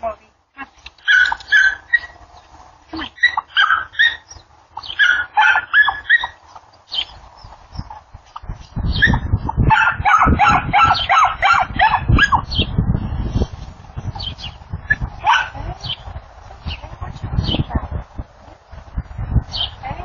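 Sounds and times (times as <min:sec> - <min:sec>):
small dog yapping: 0:01.0 - 0:02.2, 0:03.1 - 0:04.3, 0:04.9 - 0:06.4
low rumble: 0:11.6 - 0:20.0.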